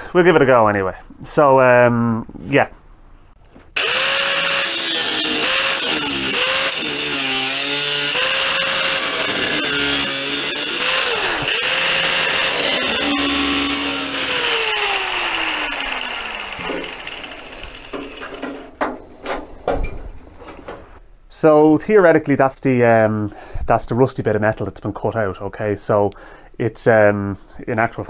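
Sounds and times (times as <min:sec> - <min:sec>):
grinder winding down whine: 0:03.8 - 0:18.4
angle grinder cutting steel sheet: 0:03.8 - 0:18.6.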